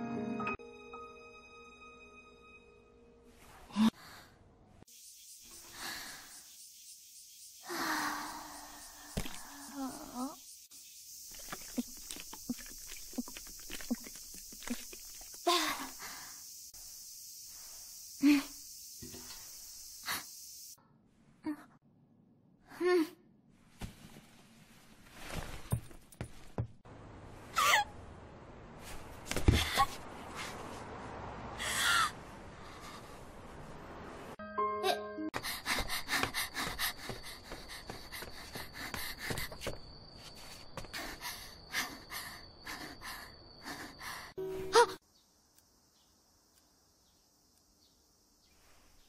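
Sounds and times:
woman humming syllable: 0:09.5 - 0:10.4
woman vocalizing: 0:09.6 - 0:10.4, 0:12.5 - 0:16.0, 0:22.7 - 0:23.2
soft rustle: 0:23.6 - 0:26.6, 0:28.8 - 0:31.0.

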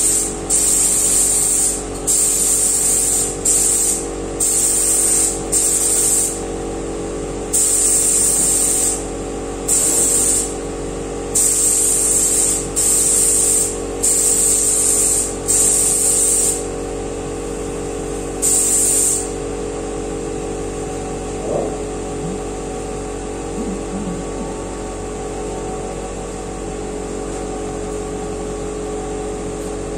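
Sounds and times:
paint spray gun hissing: 0:00.0 - 0:06.4, 0:07.5 - 0:09.1, 0:09.7 - 0:10.6, 0:11.4 - 0:16.7, 0:18.4 - 0:19.4
steady machine hum: 0:00.0 - 0:29.9.

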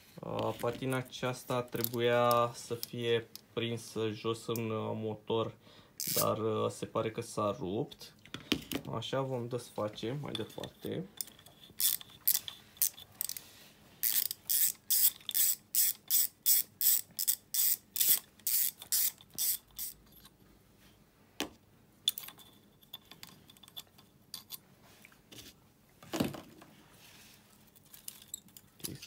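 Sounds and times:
ratchet wrench clicking: 0:06.0 - 0:06.3, 0:11.2 - 0:13.4, 0:14.0 - 0:20.0.

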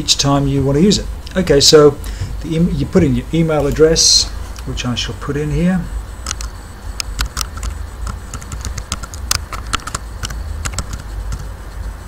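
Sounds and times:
steady low hum: 0:00.0 - 0:12.0
keyboard key clicks: 0:06.3 - 0:11.5.

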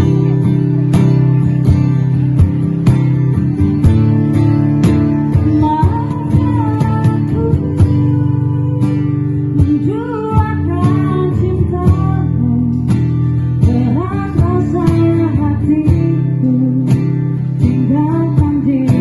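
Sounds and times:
strummed acoustic guitar: 0:00.0 - 0:19.0
woman singing into microphone: 0:05.0 - 0:19.0.

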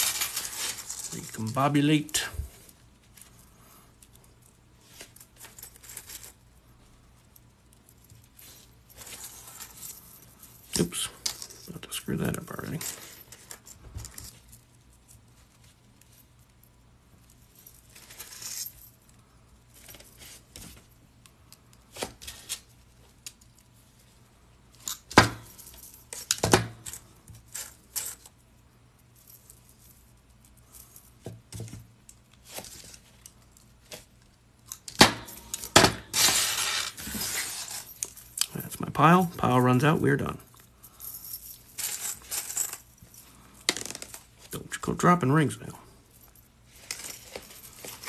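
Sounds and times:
rings jingling as sifted: 0:00.0 - 0:02.2, 0:35.4 - 0:43.6
metal rings clinking: 0:34.7 - 0:39.2, 0:40.4 - 0:44.3.

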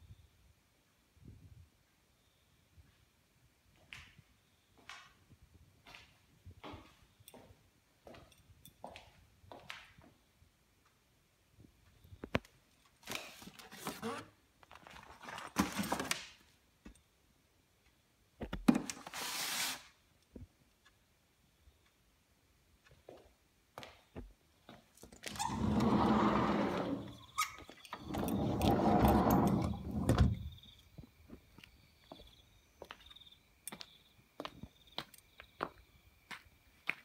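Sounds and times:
door squealing scrape: 0:25.3 - 0:30.5.

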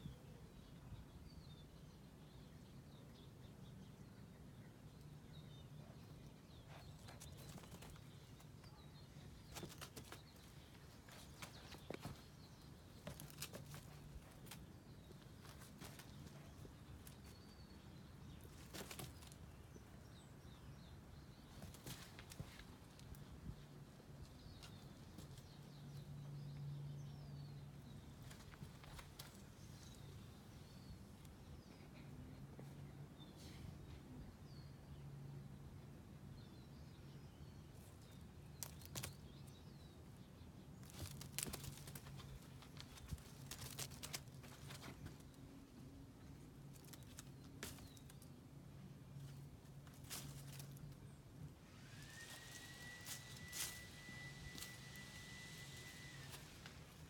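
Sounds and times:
paws rustling dry leaves: 0:40.8 - 0:48.4, 0:49.0 - 0:51.1, 0:51.7 - 0:57.0.

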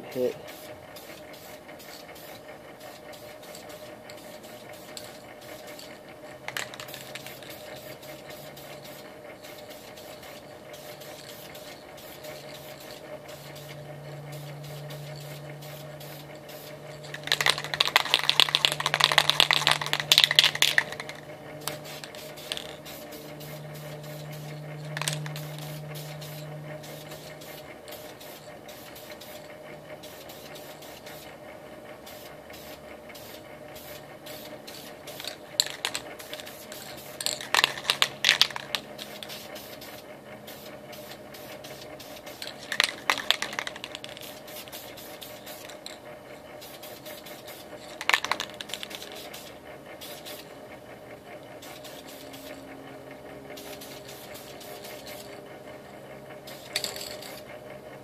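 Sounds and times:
aerosol can spraying: 0:00.5 - 0:31.3, 0:32.0 - 0:46.0, 0:46.6 - 0:50.5, 0:51.6 - 0:52.6, 0:53.6 - 0:55.4.

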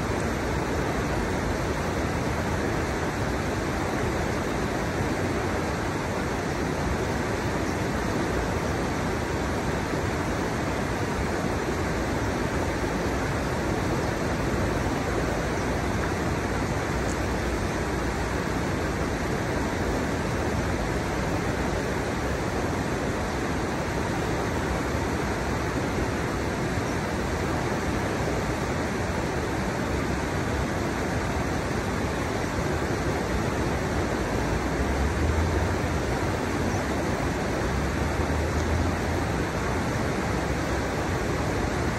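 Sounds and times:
river water rushing: 0:00.0 - 0:41.9.

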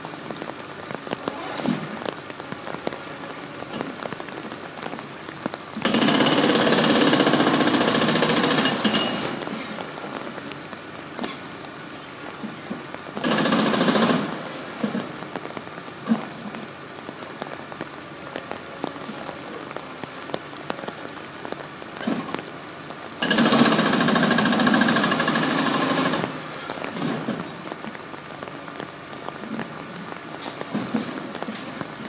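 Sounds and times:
rain and water spray hiss: 0:00.0 - 0:32.0
excavator chattering machine noise: 0:05.8 - 0:09.2, 0:13.2 - 0:14.4, 0:23.2 - 0:27.3.

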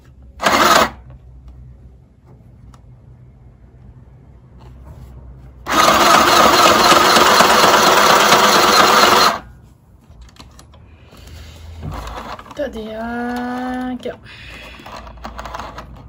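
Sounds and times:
sewing machine stitching: 0:00.4 - 0:01.0, 0:05.7 - 0:09.4, 0:11.9 - 0:12.7.

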